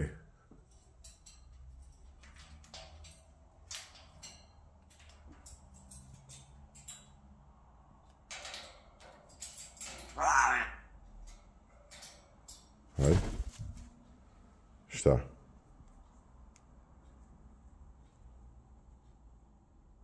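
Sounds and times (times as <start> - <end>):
soft rustles: 13.0 - 14.1.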